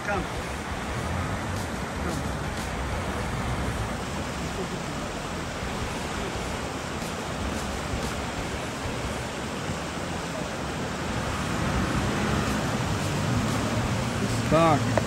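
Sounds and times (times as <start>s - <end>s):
river rushing around rocks: 0.0s - 15.0s
vehicle engine running low: 8.8s - 15.0s.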